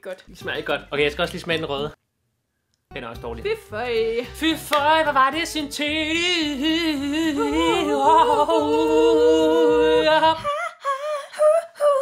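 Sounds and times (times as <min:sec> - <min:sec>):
man and woman singing: 0:03.3 - 0:12.0
person humming: 0:06.0 - 0:12.0.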